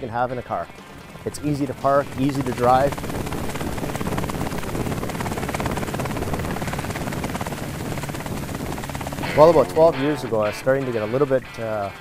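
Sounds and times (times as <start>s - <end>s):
helicopter rotor pulsing: 0.0s - 11.9s.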